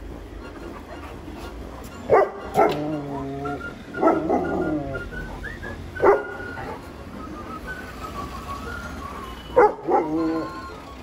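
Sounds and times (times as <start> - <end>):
dog barking: 2.1 - 2.9, 4.0 - 4.6, 6.0 - 6.8, 9.6 - 10.4.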